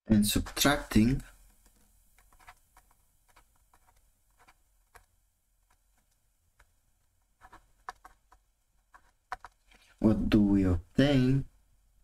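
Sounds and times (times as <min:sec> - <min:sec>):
stylus tapping on a tablet: 0:07.4 - 0:09.6.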